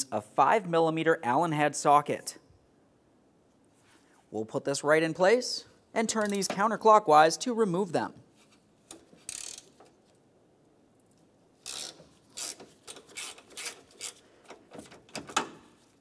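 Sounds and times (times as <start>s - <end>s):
ratchet pawl clicking: 9.3s - 9.8s, 11.6s - 14.2s.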